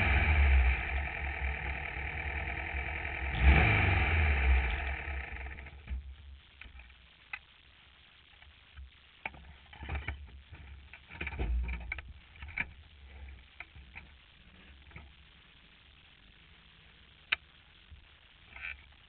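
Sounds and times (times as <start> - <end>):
engine switching off: 0.0 - 6.0.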